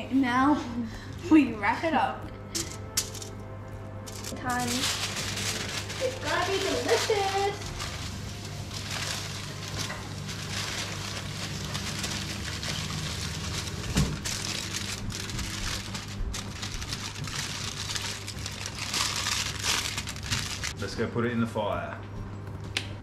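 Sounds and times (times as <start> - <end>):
aluminium foil crinkling: 2.5 - 3.4, 4.1 - 20.9.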